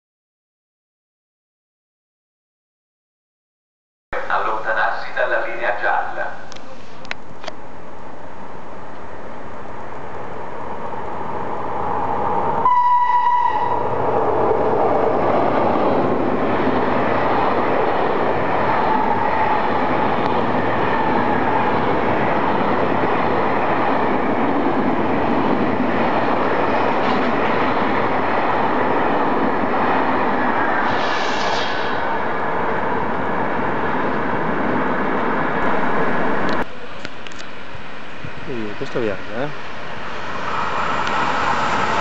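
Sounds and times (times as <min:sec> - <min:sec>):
train horn blast: 0:12.6 - 0:13.8.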